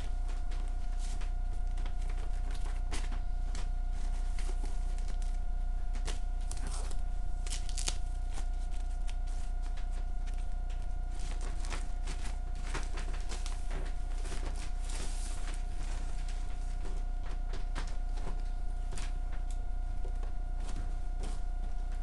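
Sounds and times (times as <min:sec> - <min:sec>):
steady hum: 0:00.0 - 0:22.0
plastic wrapping sheet crinkling: 0:00.1 - 0:19.5.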